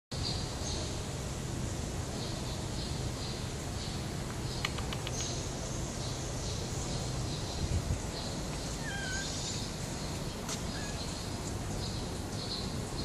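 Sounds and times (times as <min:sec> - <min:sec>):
sharp clicks: 0:04.3 - 0:05.4.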